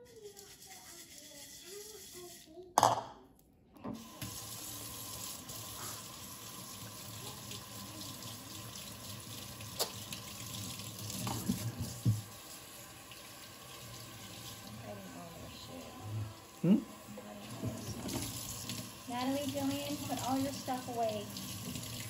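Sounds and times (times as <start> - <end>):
tap water running: 3.9 - 22.0.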